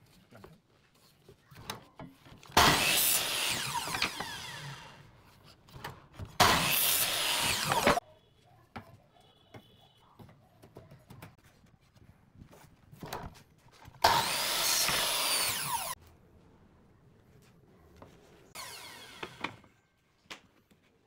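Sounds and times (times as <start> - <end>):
miter saw cutting wood: 2.6 - 5.0, 6.4 - 8.0, 14.0 - 16.0, 18.6 - 19.5
saw blade winding down whine: 2.8 - 5.0, 6.5 - 8.0, 14.1 - 16.0, 18.6 - 19.4.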